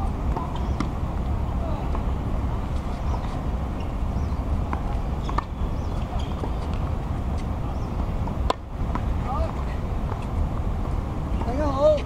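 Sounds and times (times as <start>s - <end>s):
tennis ball strikes on racket: 8.4s - 9.1s.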